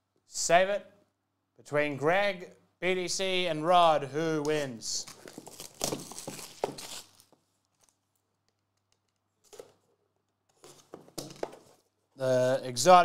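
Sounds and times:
plastic wrap tearing and crinkling: 5.0s - 8.6s.

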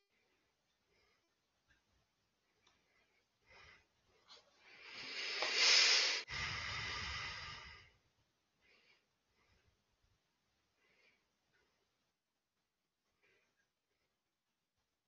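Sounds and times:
breathing into headset microphone: 3.4s - 8.0s.

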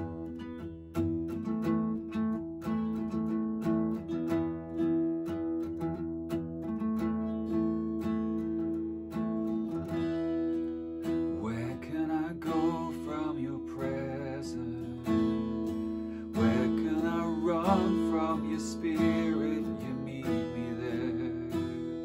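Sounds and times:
acoustic guitar strumming: 0.0s - 22.0s
man singing: 11.0s - 22.0s.

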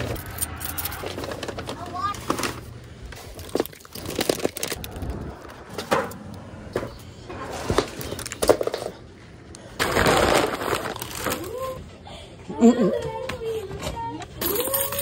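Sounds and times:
paper and plastic bags crinkling: 1.0s - 5.0s, 9.8s - 11.8s.

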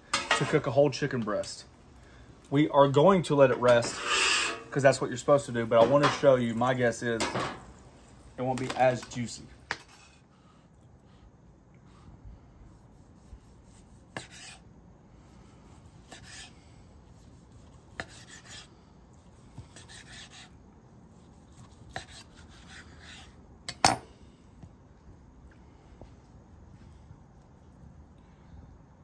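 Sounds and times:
knife sawing through chicken: 12.6s - 14.7s, 15.6s - 23.4s.

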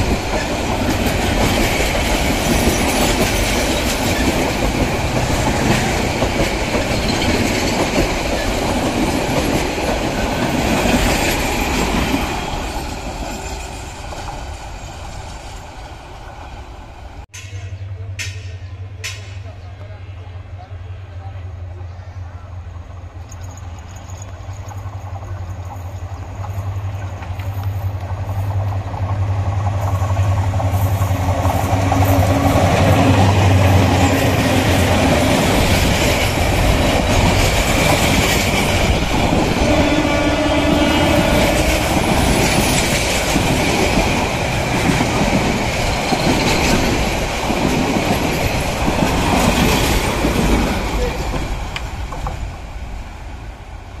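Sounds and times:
train wheels clickety-clack: 0.0s - 14.6s, 17.3s - 19.9s, 23.2s - 52.6s.

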